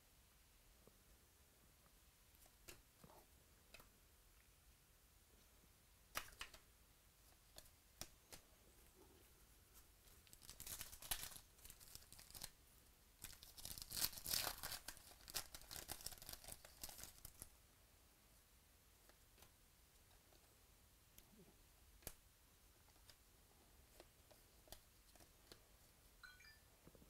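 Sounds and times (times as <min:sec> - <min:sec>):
foil wrapper tearing and crinkling: 0:10.2 - 0:12.5, 0:13.2 - 0:17.4.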